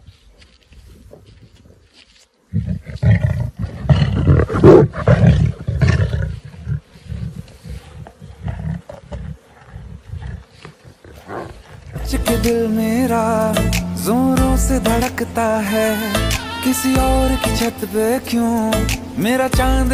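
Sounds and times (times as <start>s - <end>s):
lion roaring and grunting: 2.5s - 7.4s, 8.0s - 12.0s.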